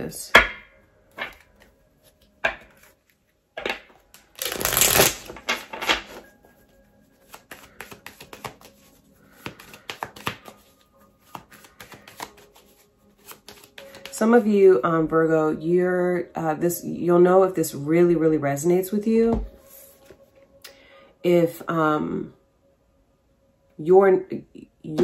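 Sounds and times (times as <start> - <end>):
cards being shuffled: 1.2 - 6.3, 7.1 - 14.2.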